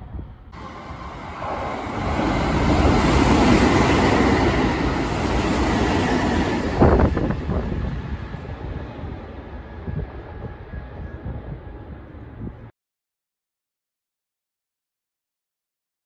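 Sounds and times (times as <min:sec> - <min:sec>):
electric train rumbling past: 0:00.0 - 0:12.7.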